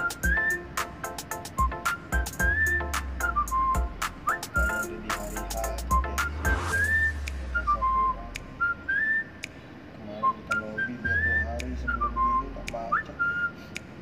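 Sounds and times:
whistled melody music: 0.0s - 9.6s, 10.2s - 13.9s
low bass: 2.4s - 8.7s.

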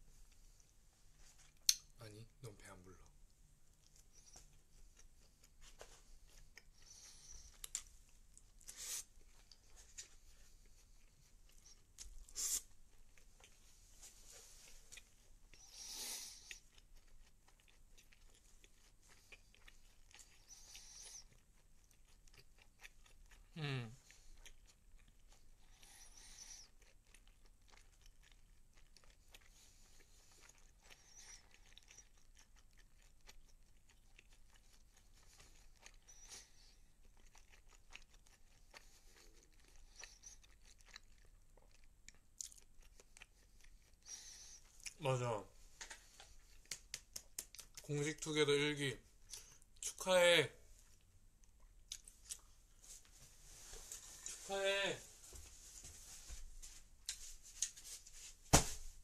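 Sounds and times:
chewing and crunching food: 0.2s - 2.0s, 3.0s - 50.0s, 50.7s - 58.0s
person humming: 23.6s - 24.0s.

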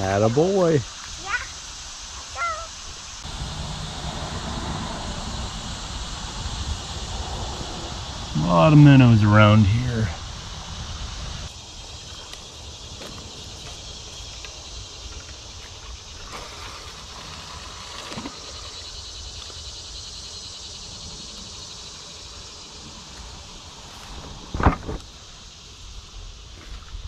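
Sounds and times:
insects trilling: 0.0s - 27.0s
low rumble: 3.2s - 11.5s.

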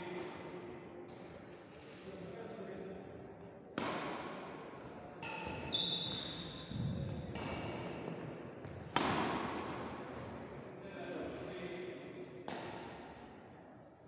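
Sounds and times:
rackets striking shuttlecock: 3.8s - 4.4s, 8.9s - 9.7s.

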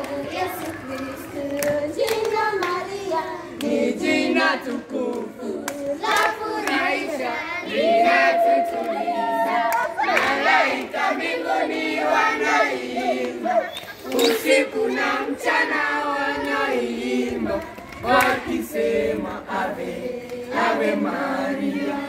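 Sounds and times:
hand claps: 0.0s - 2.8s, 4.6s - 6.9s, 17.5s - 18.4s
children singing: 0.0s - 22.0s.

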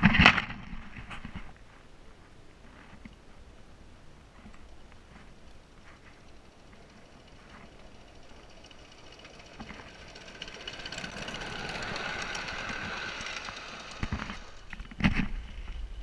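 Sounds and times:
steam locomotive clattering past: 6.2s - 14.7s.

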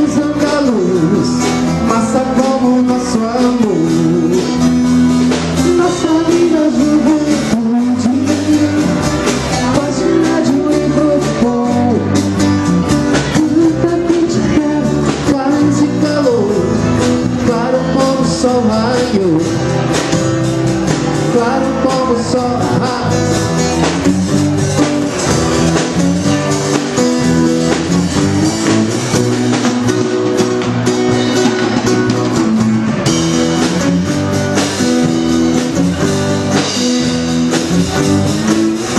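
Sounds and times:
person singing: 0.0s - 28.9s
live band music: 0.0s - 38.9s
twelve-string guitar strumming: 0.0s - 38.9s.

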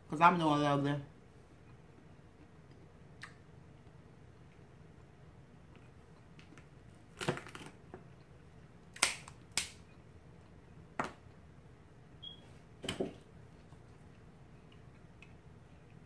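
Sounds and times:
crab shells cracking: 6.4s - 7.8s.

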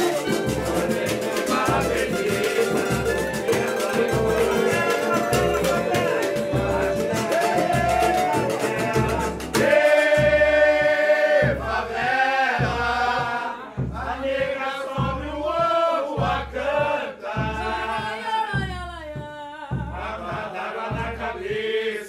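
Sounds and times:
nylon-string acoustic guitar: 0.0s - 9.6s
hand drum beating deep: 0.0s - 21.6s
group singing: 0.0s - 22.0s.

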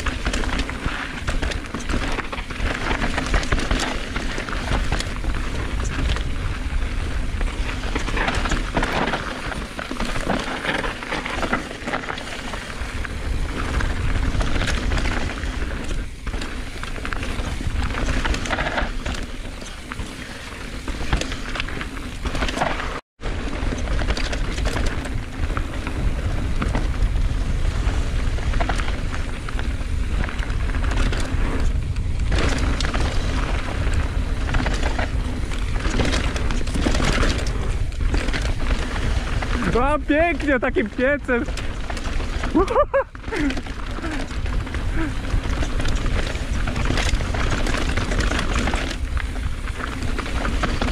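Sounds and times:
bike rattling and knocking: 0.0s - 50.9s
tyres on dirt and stones: 0.0s - 50.9s
wind buffeting microphone: 23.3s - 50.9s.

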